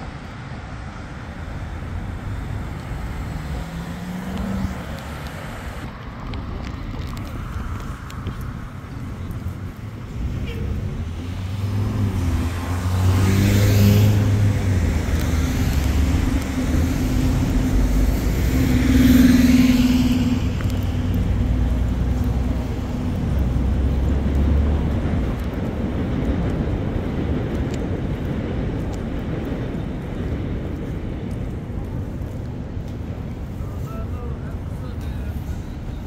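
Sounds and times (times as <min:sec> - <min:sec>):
low engine rumble: 0:00.0 - 0:36.0
vehicles sweeping past: 0:00.0 - 0:36.0.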